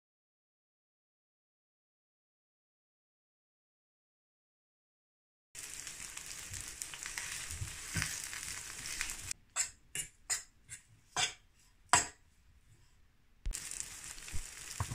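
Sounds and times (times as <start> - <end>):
chillies sizzling in hot oil: 5.6 - 9.7, 13.5 - 14.9
metal spoon scraping and stirring: 7.2 - 12.2.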